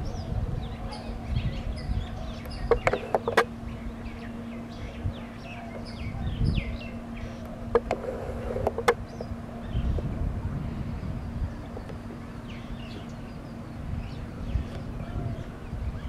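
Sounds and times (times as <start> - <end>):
birds chirping: 0.0 - 16.0
distant diesel locomotive drone: 0.0 - 16.0
sharp clicks: 2.4 - 3.5.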